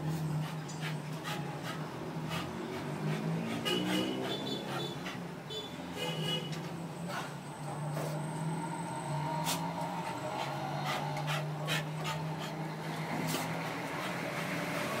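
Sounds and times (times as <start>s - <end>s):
dog panting: 0.0s - 5.5s, 9.4s - 15.0s.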